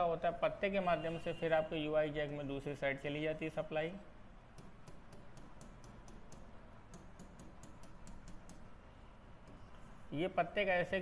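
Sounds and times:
marker tapping on writing board: 4.5s - 8.7s.

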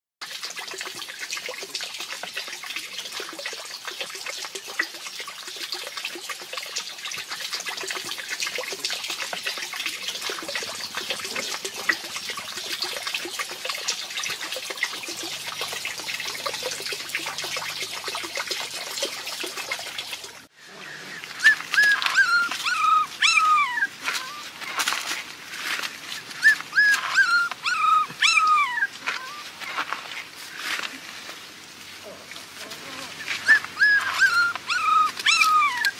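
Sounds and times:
trickle of running water: 0.2s - 35.9s
puppies whimpering: 20.8s - 24.5s, 26.4s - 29.5s, 33.4s - 35.9s.

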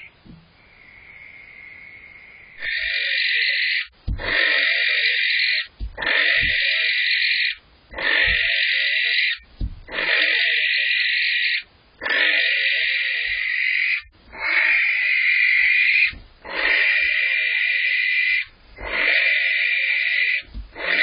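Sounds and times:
barn owl screeching: 0.0s - 21.0s
soft low thumps: 4.0s - 4.3s, 5.7s - 6.7s, 9.4s - 9.9s, 16.1s - 16.4s, 20.5s - 20.8s.

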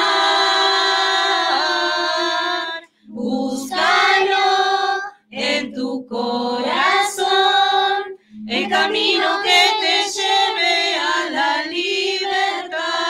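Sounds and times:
choir of women and children singing: 0.0s - 13.0s.

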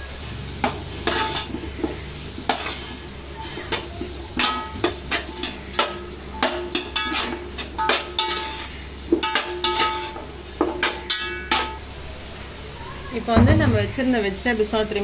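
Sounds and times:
vegetables sizzling in oil: 0.0s - 15.0s
metal spoon clanking in pot: 0.6s - 2.8s, 4.4s - 11.8s.

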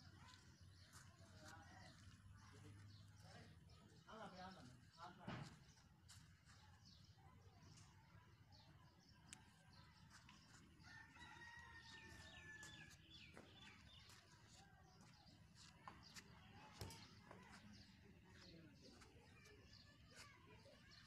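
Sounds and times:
small birds chirping: 0.0s - 21.0s
thump: 5.2s - 5.6s
faint rooster crowing: 10.8s - 13.0s.

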